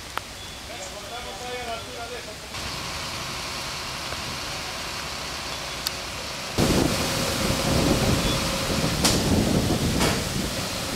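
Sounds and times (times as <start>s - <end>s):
outdoor background noise: 0.0s - 10.9s
wind buffeting microphone: 6.6s - 10.9s.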